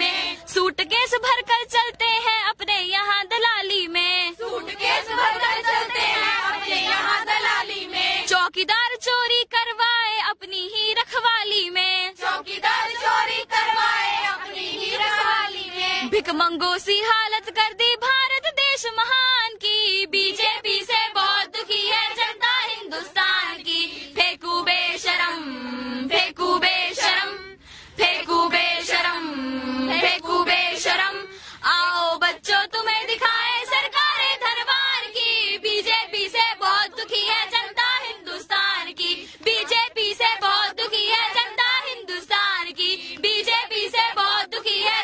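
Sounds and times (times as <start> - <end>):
high voice singing: 28.1 - 31.3.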